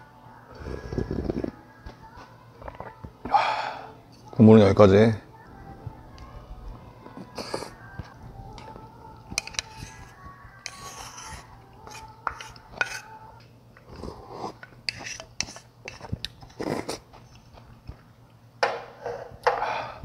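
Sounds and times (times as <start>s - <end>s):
slurping broth: 0.6s - 1.6s, 13.8s - 17.1s
spoon clicking against bowl: 9.4s - 9.8s.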